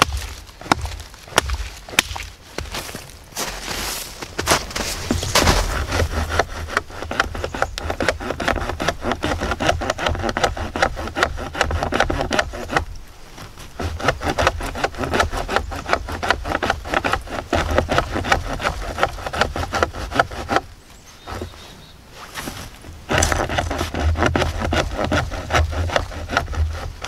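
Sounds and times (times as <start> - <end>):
knife sawing through wooden stick: 5.0 - 12.9, 13.8 - 21.6, 23.1 - 27.0.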